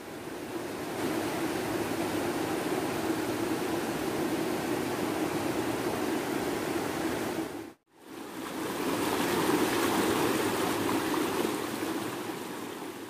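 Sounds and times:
river rushing over rocks: 0.4 - 13.0.

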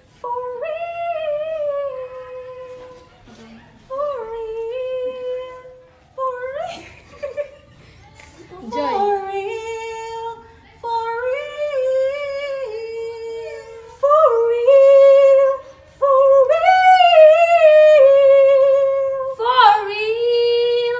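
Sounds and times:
woman singing long high notes: 8.6 - 20.9.

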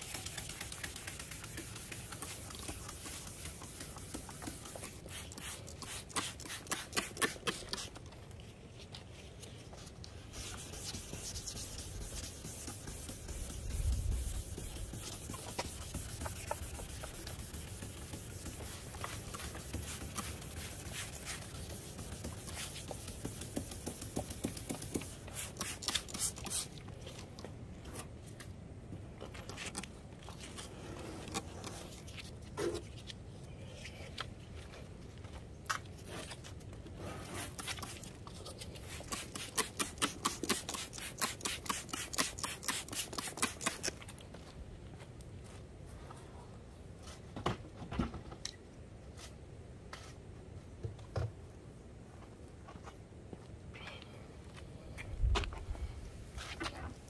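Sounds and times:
rubbing on plastic lens: 0.0 - 28.2.

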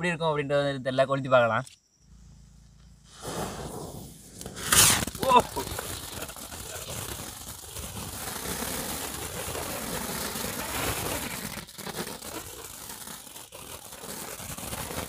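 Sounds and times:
fountain fireworks hissing: 3.1 - 15.0.

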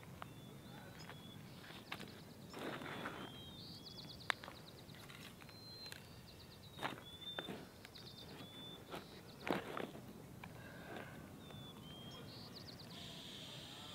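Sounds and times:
high-pitched animal chirps and trills: 12.9 - 13.9.

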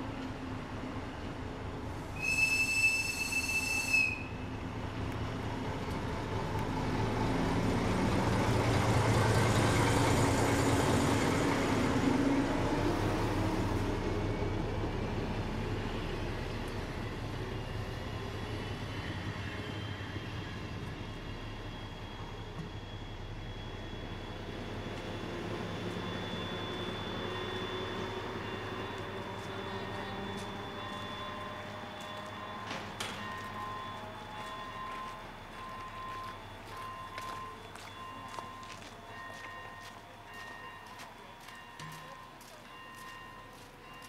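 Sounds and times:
diesel locomotive engine: 0.0 - 44.0
high whistle blast: 2.2 - 4.5, 21.6 - 37.8.

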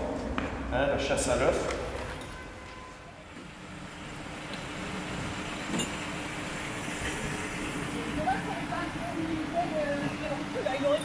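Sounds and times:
vehicle engine idling: 2.4 - 11.0.

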